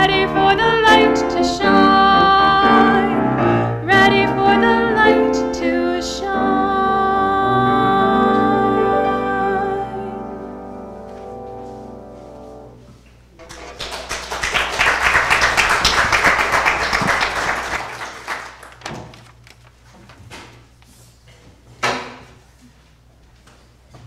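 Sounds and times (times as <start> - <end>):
piano chord ringing: 6.4 - 13.8
audience applause: 13.4 - 19.2.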